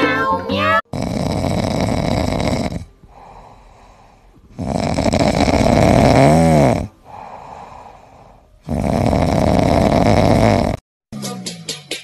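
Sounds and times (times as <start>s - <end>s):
cat snoring: 0.8s - 10.8s
cat breathing quietly: 2.9s - 4.6s, 7.0s - 8.7s.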